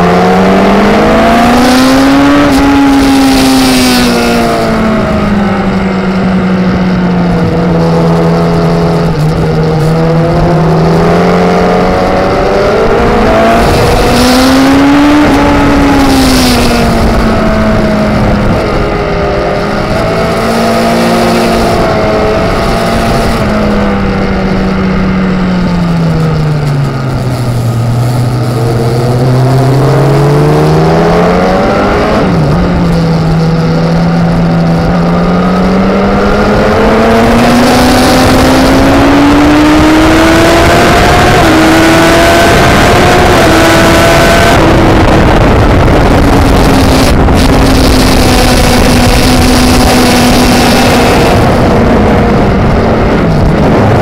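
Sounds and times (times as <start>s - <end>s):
racing motorcycle engine: 0.0s - 54.0s
rush of wind: 0.0s - 54.0s.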